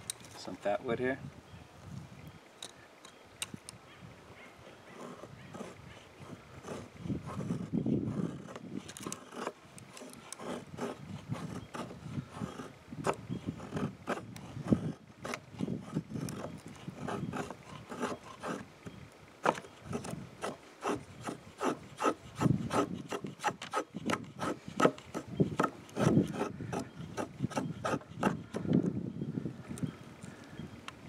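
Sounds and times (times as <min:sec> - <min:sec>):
knife scraping wood: 0:04.8 - 0:28.8.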